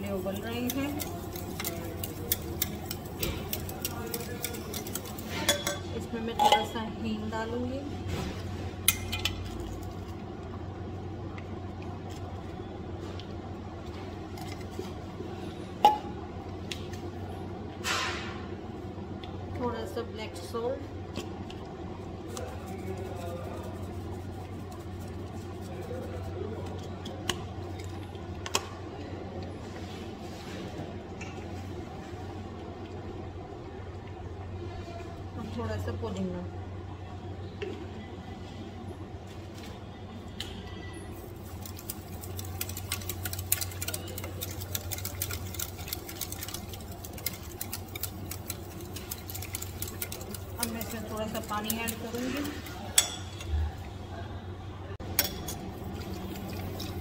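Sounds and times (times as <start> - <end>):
whisk scraping a metal saucepan: 0.0 - 5.8, 41.2 - 53.4
low kitchen hum: 0.0 - 57.0.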